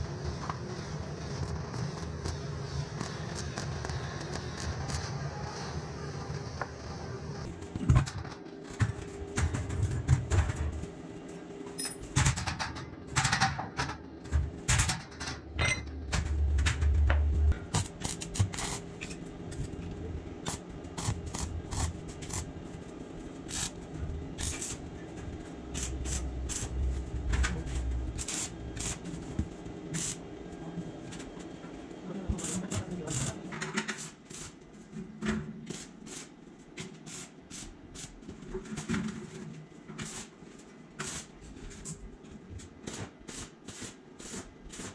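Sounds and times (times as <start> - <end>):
low rumble: 15.9 - 17.6.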